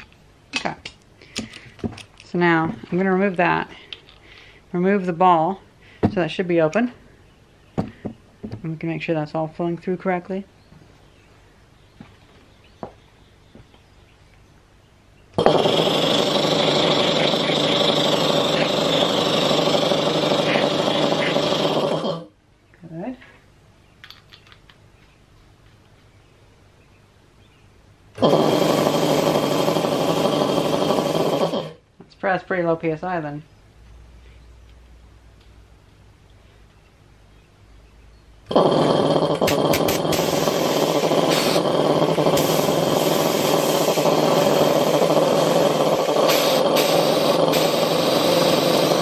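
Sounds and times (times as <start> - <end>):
hiss of air: 15.4 - 22.2, 28.2 - 31.8, 38.5 - 49.0
air compressor running: 15.4 - 22.3, 28.2 - 31.8, 38.5 - 49.0.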